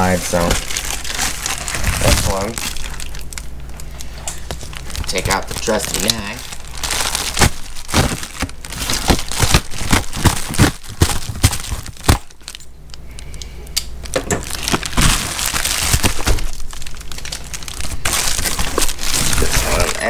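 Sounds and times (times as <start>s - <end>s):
knife cutting plastic bag: 0.0s - 3.2s, 4.4s - 12.6s, 14.4s - 20.0s
plastic bag crinkling: 0.0s - 13.1s, 13.9s - 20.0s.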